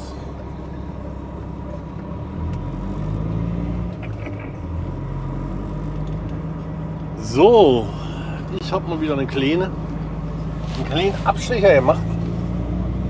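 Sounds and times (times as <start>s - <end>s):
truck diesel engine from cab: 0.0s - 13.0s.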